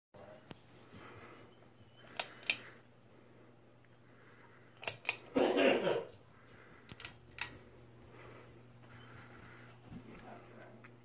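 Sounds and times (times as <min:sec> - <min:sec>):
ceiling fan pull-chain switch clicking: 0:02.1 - 0:02.6, 0:06.9 - 0:07.6.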